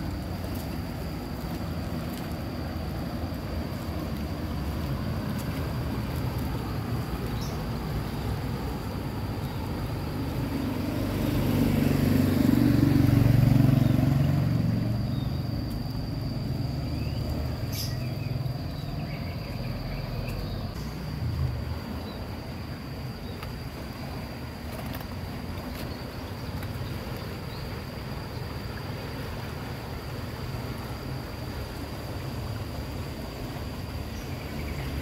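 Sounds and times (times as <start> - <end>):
river rushing through culvert: 0.0 - 35.0
vehicle engine passing: 0.8 - 22.5.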